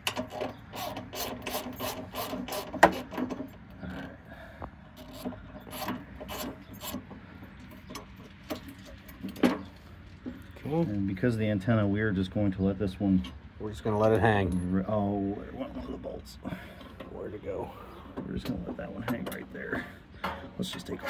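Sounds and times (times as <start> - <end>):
metal scraping: 20.2 - 21.0.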